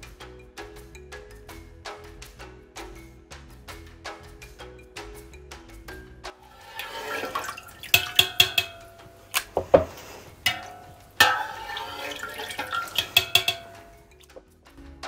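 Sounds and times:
whey dripping and splashing: 0:06.3 - 0:14.5
metal skimmer clinking on pot: 0:06.4 - 0:14.4.

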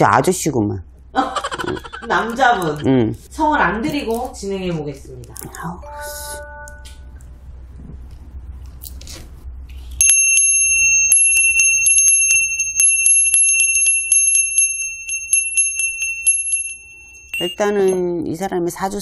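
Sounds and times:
high-pitched bell-like ringing tone: 0:10.0 - 0:18.2.

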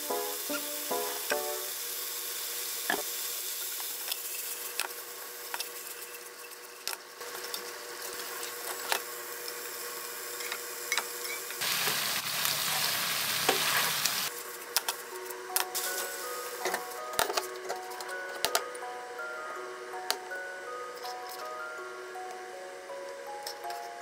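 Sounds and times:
food sizzling in a frying pan: 0:00.0 - 0:06.1, 0:07.7 - 0:14.3, 0:15.8 - 0:17.0.

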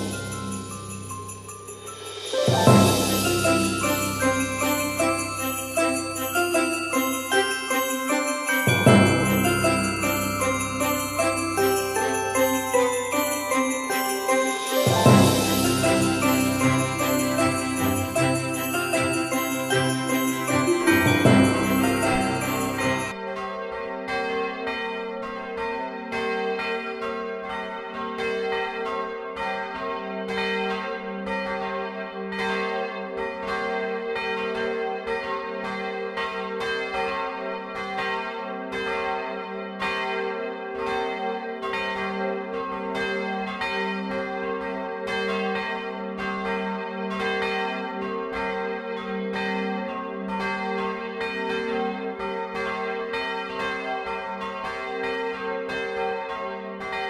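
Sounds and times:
church bells pealing: 0:00.0 - 0:23.2, 0:40.9 - 0:57.0.

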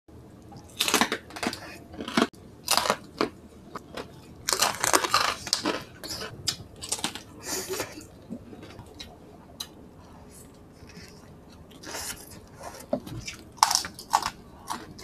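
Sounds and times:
biting and chewing: 0:00.5 - 0:09.7, 0:10.5 - 0:15.0
crispy skin crunching: 0:00.7 - 0:07.9.

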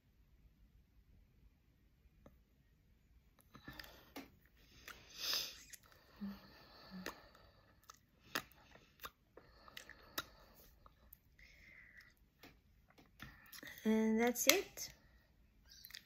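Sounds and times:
lips smacking: 0:03.6 - 0:13.8, 0:15.7 - 0:16.0.

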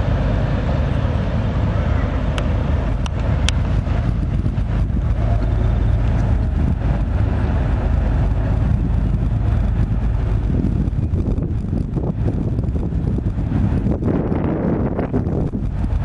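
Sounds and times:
ship engines rumbling: 0:00.0 - 0:16.0
wind buffeting microphone: 0:00.0 - 0:16.0.

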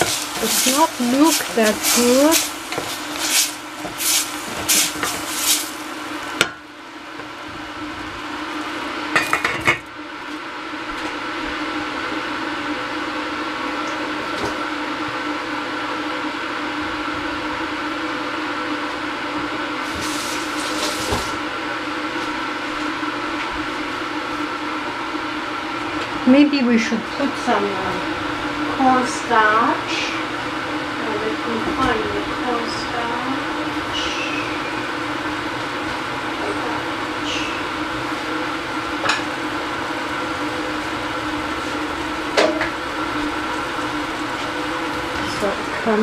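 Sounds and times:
wooden spatula scraping pan: 0:00.0 - 0:05.7
vegetables frying: 0:00.0 - 0:10.2, 0:19.5 - 0:23.0, 0:25.8 - 0:46.0
steady hum and hiss: 0:00.0 - 0:46.0.

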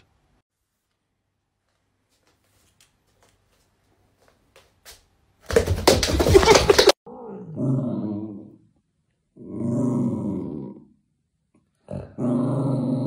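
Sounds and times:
cat growling low: 0:09.4 - 0:11.0, 0:11.8 - 0:13.0.

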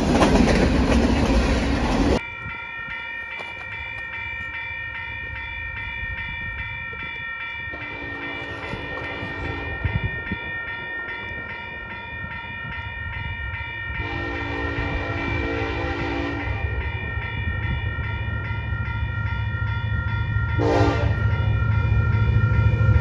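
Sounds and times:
crossing warning bell ringing: 0:00.0 - 0:23.0
train horn blasts: 0:07.8 - 0:10.1, 0:14.0 - 0:16.9, 0:20.6 - 0:21.4.

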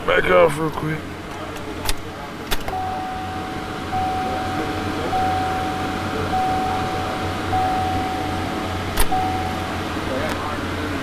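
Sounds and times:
low steady hum: 0:00.0 - 0:11.0
pulsing vehicle warning chime: 0:02.7 - 0:10.2.

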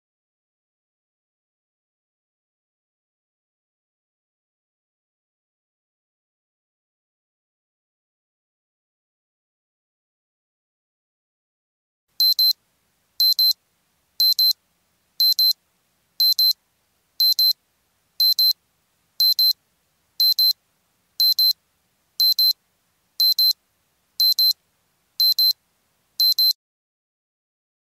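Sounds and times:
alarm clock double beeps: 0:12.2 - 0:12.5, 0:13.2 - 0:13.6, 0:14.2 - 0:14.6, 0:15.2 - 0:15.6, 0:16.2 - 0:16.6, 0:17.2 - 0:17.6, 0:18.2 - 0:18.6, 0:19.2 - 0:19.6, 0:20.2 - 0:20.6, 0:21.2 - 0:21.6, 0:22.2 - 0:22.6, 0:23.2 - 0:23.6, 0:24.2 - 0:24.6, 0:25.2 - 0:25.6, 0:26.2 - 0:26.6.

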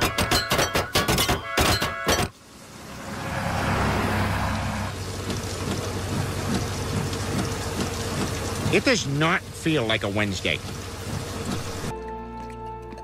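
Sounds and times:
fast clanging hits: 0:00.0 - 0:02.3
rain: 0:01.6 - 0:13.0
tyres hissing on wet road: 0:02.3 - 0:11.9
low engine hum: 0:02.4 - 0:13.0.

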